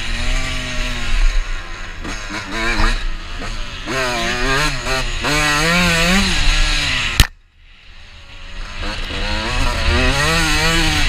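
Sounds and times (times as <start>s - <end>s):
two-stroke engine revving: 0.0s - 7.3s, 8.0s - 11.0s
sharp click: 7.2s - 7.4s.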